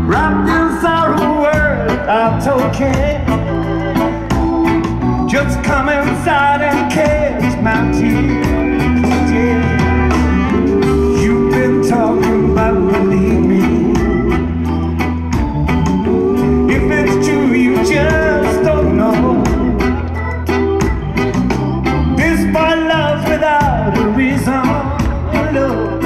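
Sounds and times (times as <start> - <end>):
bass: 0.0 - 26.0
guitar: 0.0 - 26.0
wavering lead vocal: 0.0 - 26.0
drum beat: 16.1 - 20.0.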